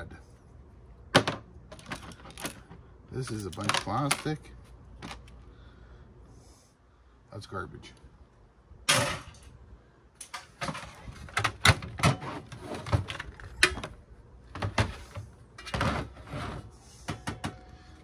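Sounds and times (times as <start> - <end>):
casing panels clattering and scraping: 10.3 - 17.7.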